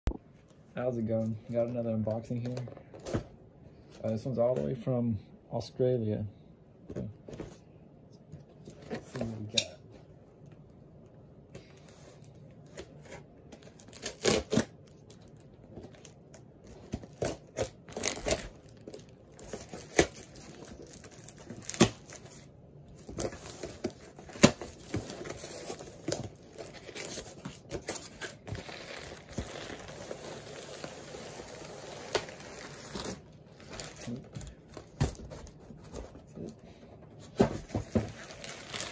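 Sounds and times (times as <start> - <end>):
packing tape ripping: 13.7 - 15.4, 16.0 - 22.3, 23.2 - 34.2, 37.9 - 38.9
cardboard flaps rustling: 37.1 - 38.9.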